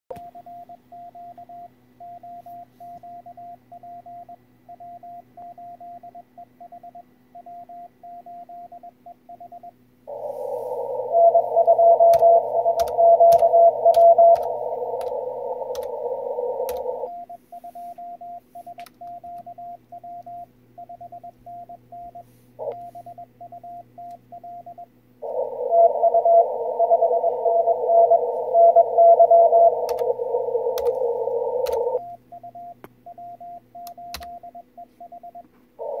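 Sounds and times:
morse code sidetone: 0.1s - 36.0s
receiver hiss: 10.0s - 18.0s, 25.2s - 32.0s
received morse code signal: 10.1s - 36.0s
keyboard clicks: 12.0s - 15.9s, 16.7s - 16.9s, 29.9s - 30.1s, 30.8s - 31.0s, 31.6s - 31.9s, 33.8s - 34.4s.

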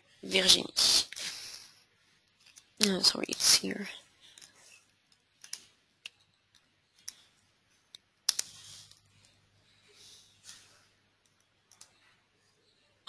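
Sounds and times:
computer mouse clicking: 7.9s - 9.4s, 11.2s - 12.0s.

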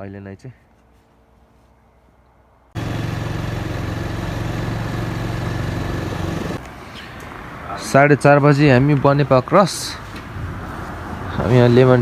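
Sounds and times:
wind and road noise: 0.0s - 12.0s
motorcycle engine running: 2.8s - 6.6s.

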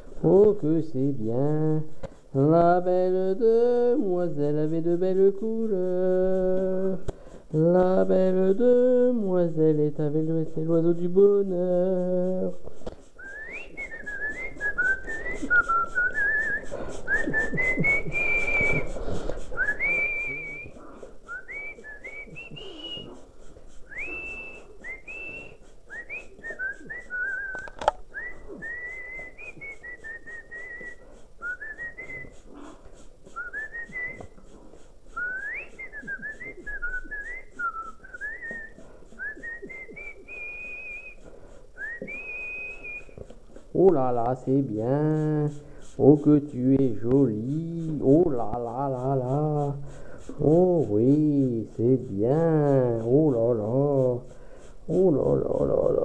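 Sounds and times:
person whistling: 2.4s - 32.5s, 33.3s - 34.4s, 35.1s - 56.0s
sharp click: 27.5s - 28.1s.

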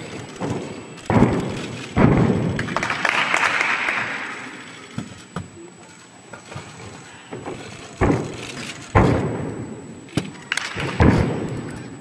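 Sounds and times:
audience applause: 2.6s - 4.3s.

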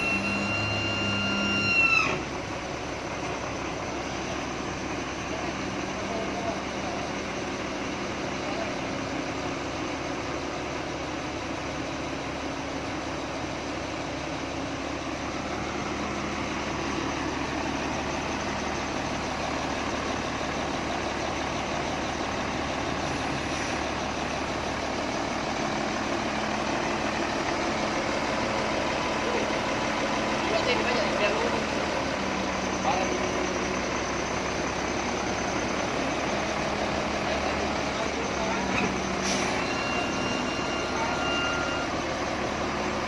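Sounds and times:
diesel engine idling: 0.0s - 43.0s.

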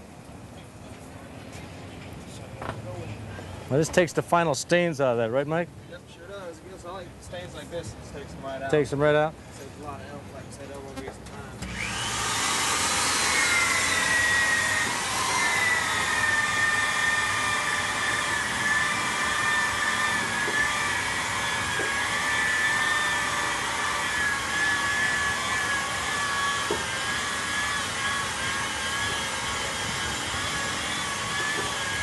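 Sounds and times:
electric polisher whining: 11.6s - 32.0s.

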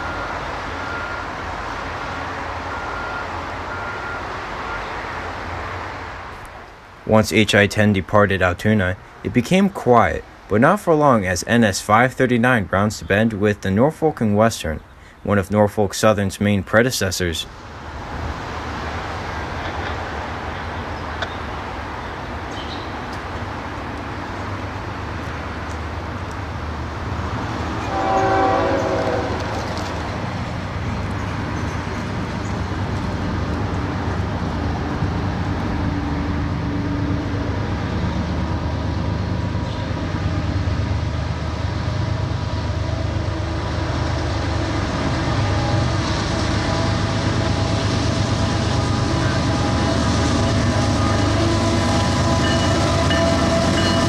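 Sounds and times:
locomotive engine drone: 0.0s - 15.4s, 17.0s - 54.0s
train horn blast: 27.8s - 29.8s, 42.6s - 54.0s.

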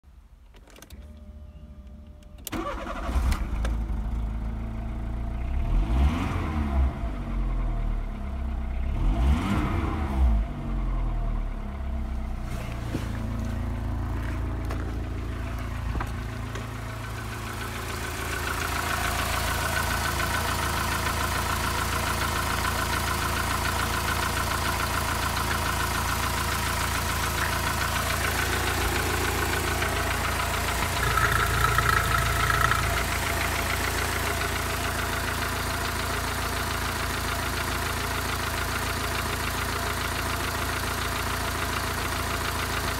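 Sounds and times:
car engine starting and idling: 0.1s - 42.9s
engine revving: 5.5s - 7.4s, 8.8s - 10.8s, 26.9s - 35.6s
high-pitched mechanical noise: 31.0s - 33.1s.

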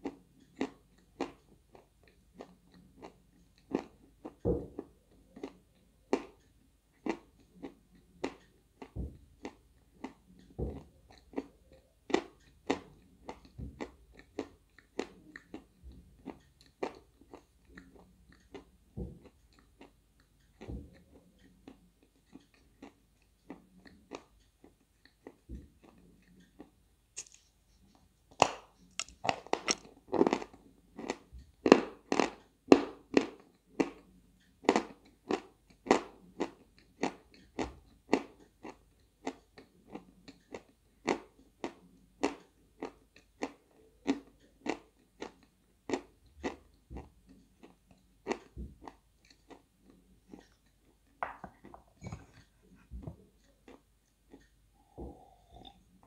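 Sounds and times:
chalk being chewed: 19.3s - 31.2s, 36.4s - 51.0s.

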